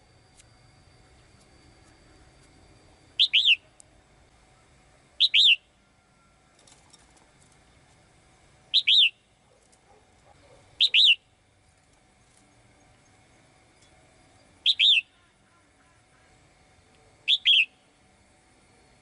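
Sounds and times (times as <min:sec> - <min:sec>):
bird chirping: 0:03.2 - 0:03.7, 0:05.2 - 0:05.7, 0:08.7 - 0:09.3, 0:10.8 - 0:11.3, 0:14.3 - 0:15.3, 0:17.3 - 0:17.9.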